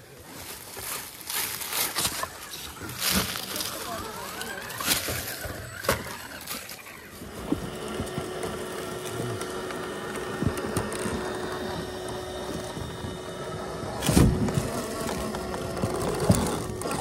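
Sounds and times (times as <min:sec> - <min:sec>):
rc car motor whine: 0:00.6 - 0:17.0.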